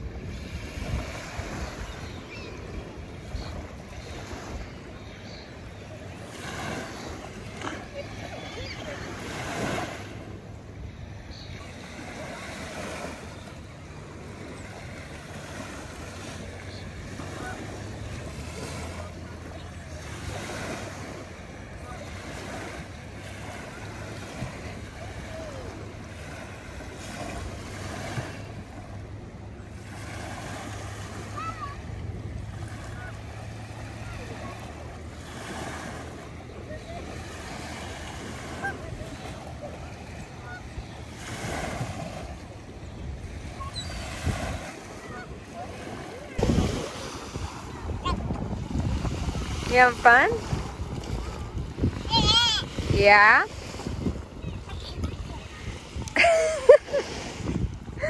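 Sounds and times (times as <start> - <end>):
lake water washing: 0.0 - 58.0
wind buffeting microphone: 41.9 - 58.0.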